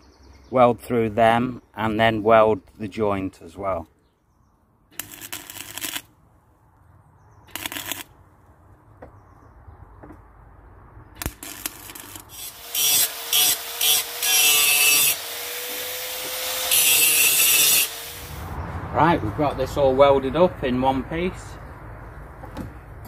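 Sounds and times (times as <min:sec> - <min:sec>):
welding arc crackling: 0:05.0 - 0:06.1, 0:07.5 - 0:08.1, 0:11.2 - 0:18.4.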